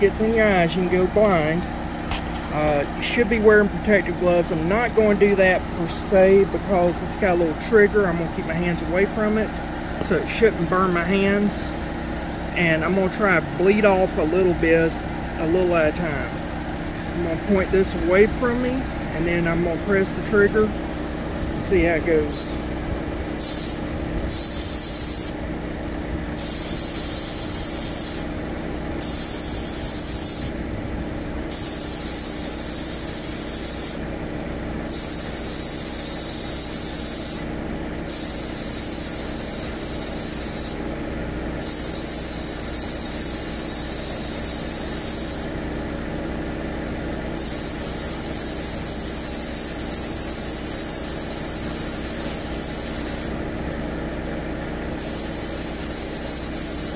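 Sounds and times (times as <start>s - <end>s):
engine hum: 0.0s - 56.9s
refrigerant hissing from hose valve: 22.2s - 22.6s, 23.4s - 25.4s, 26.4s - 28.3s, 29.0s - 30.5s, 31.5s - 34.0s, 34.9s - 37.5s, 38.1s - 40.8s, 41.6s - 45.5s, 47.4s - 53.3s, 55.0s - 56.9s.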